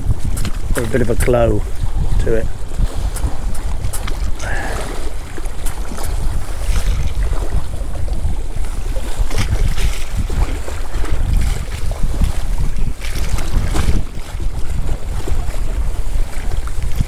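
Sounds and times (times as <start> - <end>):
sea water lapping: 0.0 - 17.0
wind buffeting the microphone: 0.0 - 17.0.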